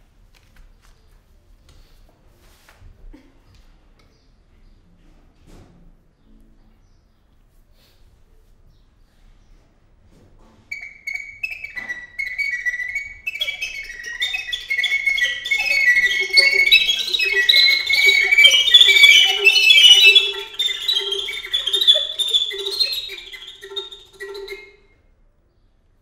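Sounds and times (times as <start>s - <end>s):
recorders playing: 10.8s - 24.8s.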